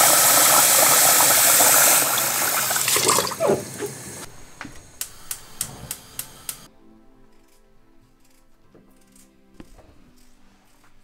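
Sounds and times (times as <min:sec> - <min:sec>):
tap water running into pot: 0:00.0 - 0:04.2
rice rinsed by hand: 0:00.0 - 0:04.3
sharp clicks: 0:04.7 - 0:06.7.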